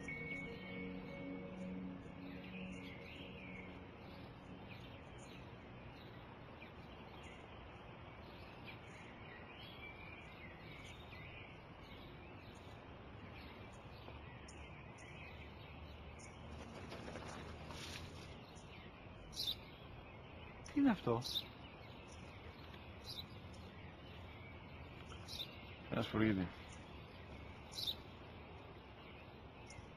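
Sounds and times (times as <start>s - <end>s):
outdoor background noise: 0.0s - 29.9s
small birds chirping: 0.0s - 29.9s
rustling: 16.5s - 18.6s.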